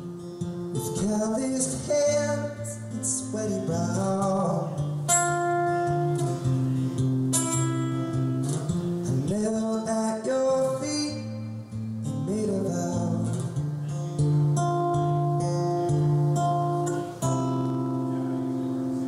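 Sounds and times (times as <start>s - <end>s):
acoustic guitar: 0.0s - 19.0s
man singing: 0.7s - 6.9s, 9.0s - 14.0s.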